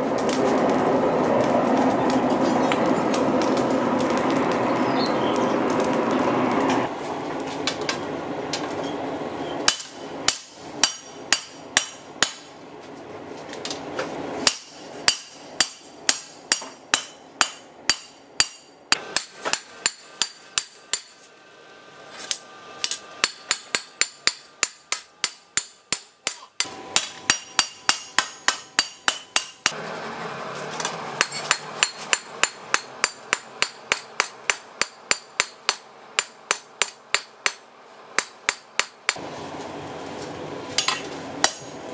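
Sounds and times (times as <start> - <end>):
steady rushing noise: 0.0 - 9.3
hammer striking steel on anvil: 9.6 - 12.5, 14.4 - 21.2, 22.3 - 29.8, 30.8 - 39.2, 40.8 - 41.9.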